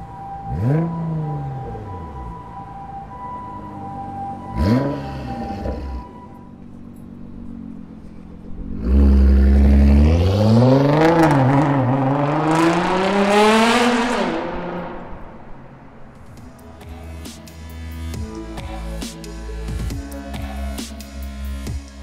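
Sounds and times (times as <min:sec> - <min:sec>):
car engine accelerating hard: 0:00.3 - 0:02.6, 0:04.4 - 0:06.3, 0:06.9 - 0:16.5.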